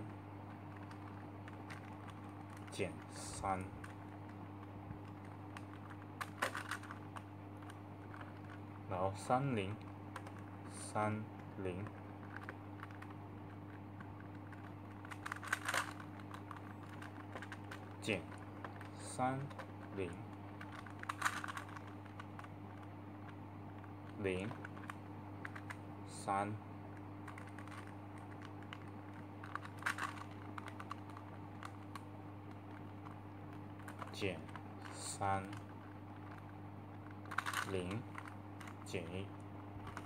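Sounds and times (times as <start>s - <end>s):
steady low hum: 0.0s - 40.0s
plastic puzzle clicking: 3.6s - 8.6s, 11.8s - 19.9s, 20.6s - 25.8s, 27.2s - 32.0s, 33.8s - 38.8s.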